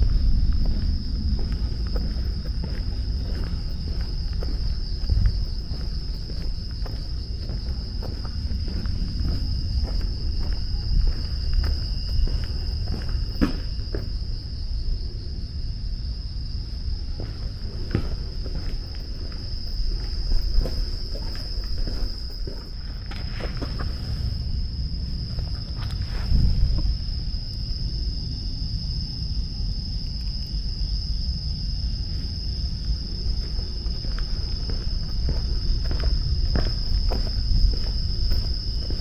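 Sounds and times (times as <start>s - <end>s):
footsteps: 0.0s - 14.2s, 17.2s - 24.3s, 32.1s - 39.0s
low rumble: 0.0s - 23.2s, 23.8s - 29.7s
insects trilling: 0.0s - 39.0s.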